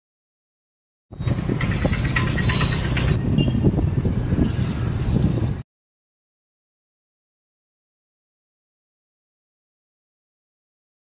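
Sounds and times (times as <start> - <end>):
train wheel clatter: 1.2 - 3.2.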